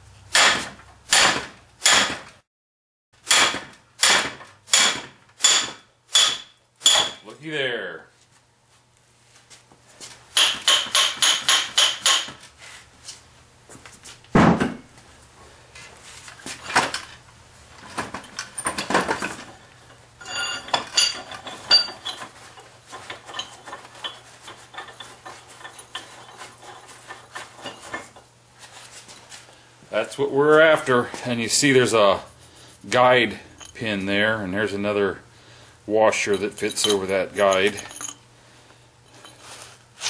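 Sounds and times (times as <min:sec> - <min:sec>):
hammer striking metal vise: 0:00.3 - 0:02.2, 0:03.3 - 0:07.2, 0:10.4 - 0:12.4
loose iron parts rattling: 0:16.3 - 0:28.3, 0:36.1 - 0:38.2.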